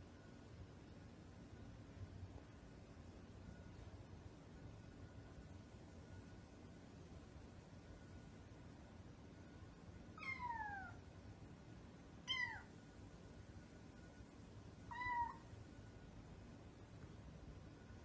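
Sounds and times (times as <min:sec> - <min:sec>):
kitten meowing: 0:10.2 - 0:11.0, 0:12.2 - 0:12.7, 0:14.9 - 0:15.4.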